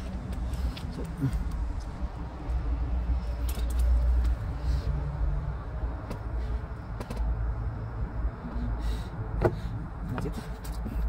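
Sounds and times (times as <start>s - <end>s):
hands handling wiring: 0.0s - 2.6s, 3.2s - 4.5s
steady low rumble: 0.0s - 11.0s.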